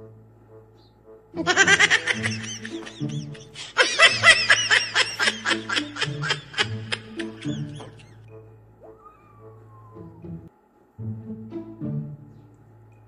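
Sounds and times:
background music: 0.0s - 13.0s
high-pitched giggling laughter: 1.4s - 8.2s.

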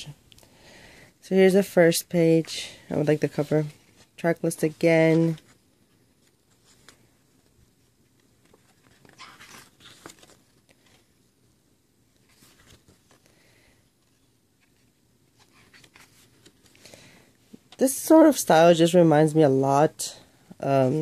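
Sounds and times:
glossy paper pages turning: 6.2s - 11.1s, 12.2s - 13.3s, 14.0s - 16.8s.

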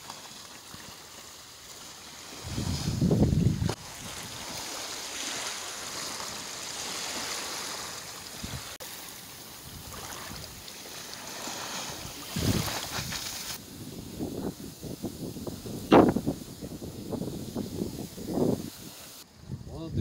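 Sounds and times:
lake waves lapping: 0.0s - 19.2s
wind gusts buffeting microphone: 2.4s - 4.4s, 12.0s - 20.0s
wind on microphone: 2.4s - 4.6s, 8.3s - 8.8s, 9.6s - 10.6s, 11.9s - 20.0s.

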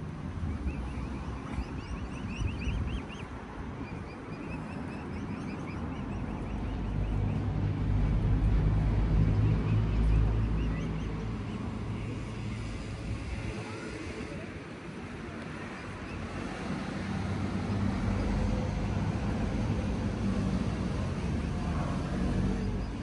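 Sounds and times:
cygnets peeping: 0.4s - 7.5s, 9.3s - 11.8s
vehicle engine rumble: 4.9s - 23.0s.

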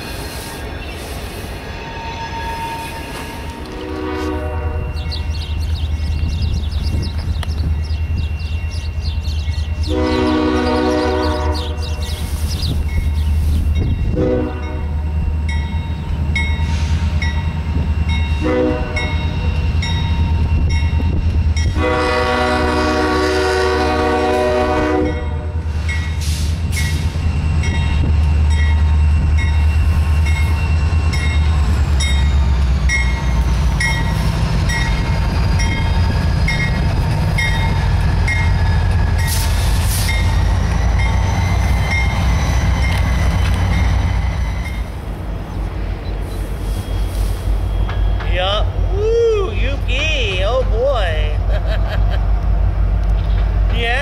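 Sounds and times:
locomotive air horn blasts: 2.5s - 5.0s, 9.8s - 12.0s, 14.1s - 14.9s, 18.4s - 19.2s, 21.7s - 25.6s
diesel engines rumbling: 2.9s - 54.0s.

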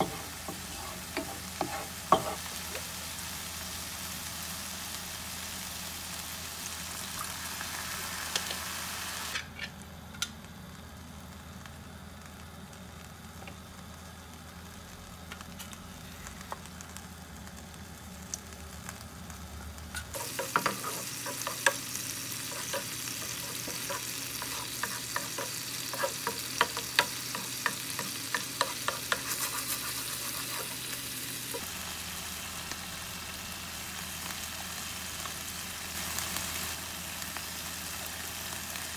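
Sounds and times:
spatula scraping a pan: 0.0s - 2.5s, 20.0s - 21.8s, 22.4s - 31.6s
sauce sizzling in a frying pan: 0.0s - 38.9s.

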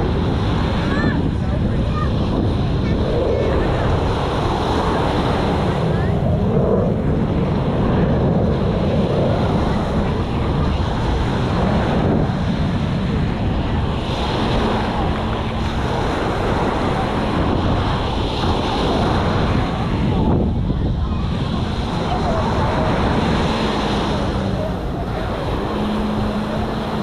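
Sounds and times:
small waves breaking on beach: 0.0s - 27.0s
wind buffeting microphone: 0.0s - 27.0s.

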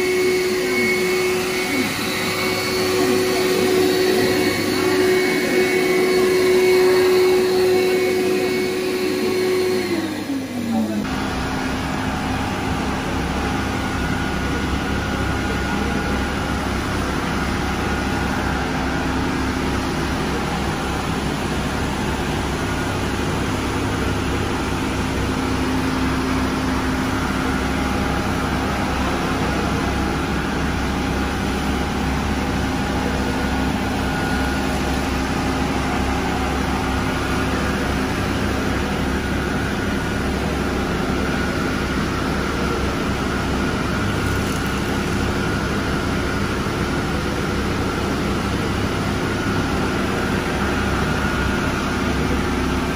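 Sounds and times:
floor scrubber motor and suction: 0.0s - 52.9s
steady machine tones: 0.0s - 52.9s.

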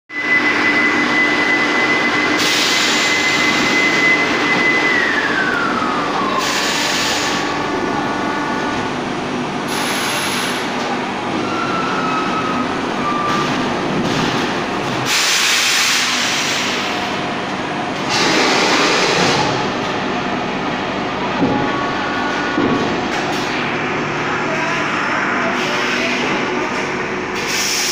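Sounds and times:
high machine whine: 0.1s - 27.9s
thermoforming machine running: 0.1s - 27.9s
hissing bursts of air: 15.0s - 17.0s, 27.4s - 27.9s.

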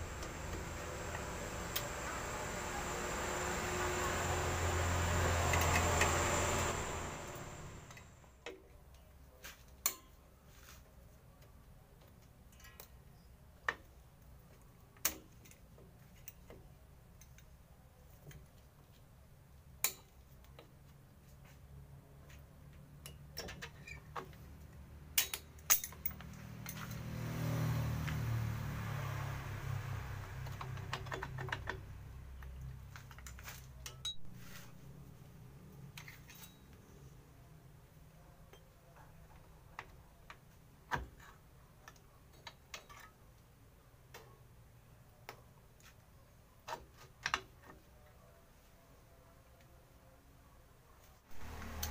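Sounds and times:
metal clicks of hand tools: 25.2s - 27.0s.

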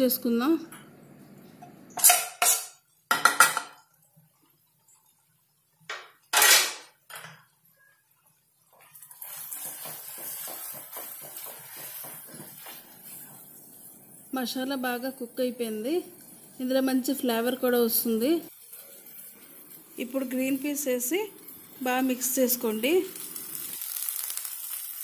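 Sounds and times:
knocks and clinks on a pan: 2.0s - 3.8s
spatula scraping paste in pan: 9.2s - 13.4s.

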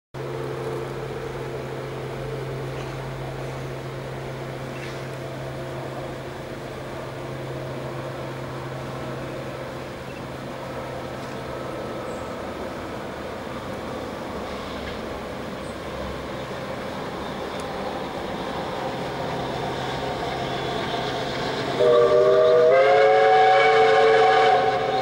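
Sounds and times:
low mechanical hum: 0.2s - 25.0s
light hiss: 9.4s - 17.8s.

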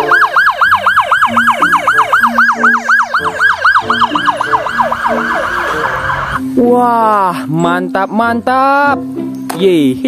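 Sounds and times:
police siren yelping: 0.0s - 6.4s.

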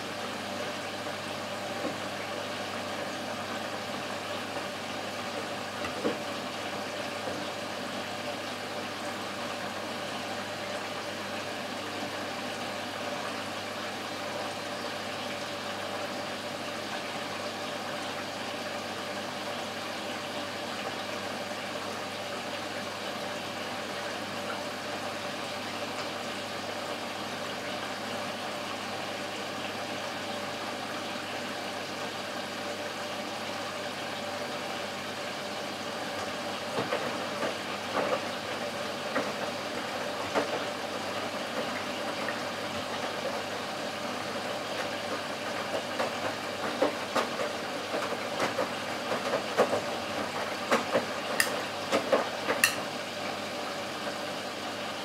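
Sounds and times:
washing machine motor hum: 0.0s - 55.0s.

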